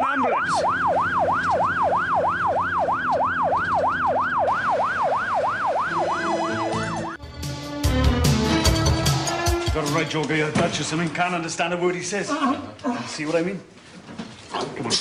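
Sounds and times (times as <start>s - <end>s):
ambulance siren yelping: 0.0s - 7.2s
music: 6.0s - 10.6s.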